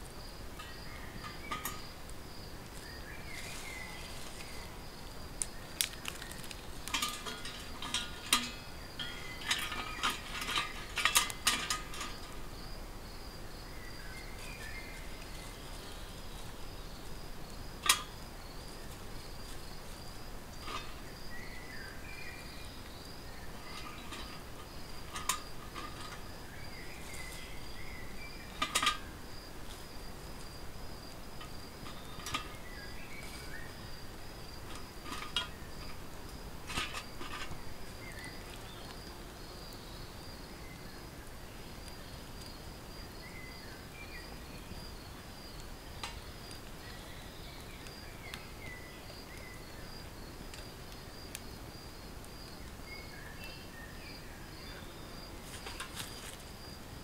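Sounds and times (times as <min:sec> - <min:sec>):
insect chirping: 0:00.0 - 0:57.0
dry twigs snapping and clinking: 0:05.4 - 0:12.4, 0:17.8 - 0:18.3, 0:23.6 - 0:27.5, 0:34.6 - 0:39.0, 0:55.5 - 0:56.4.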